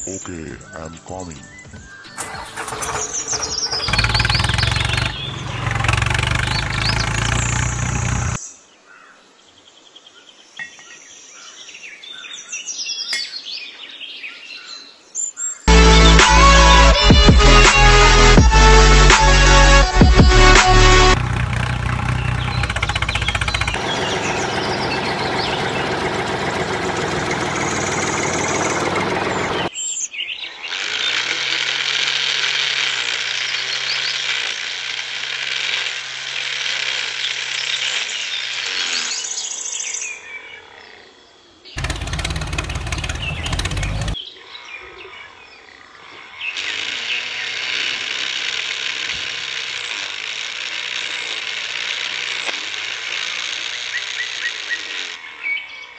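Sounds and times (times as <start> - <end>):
small electric motor whirring: 2.2 - 8.4, 30.6 - 39.7, 46.6 - 55.4.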